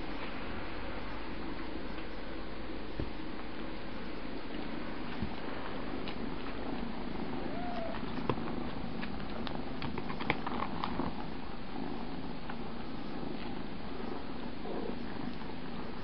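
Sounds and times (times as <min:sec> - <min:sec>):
cat purring: 0:04.5 - 0:16.0
faint kitten squeak: 0:07.4 - 0:08.1.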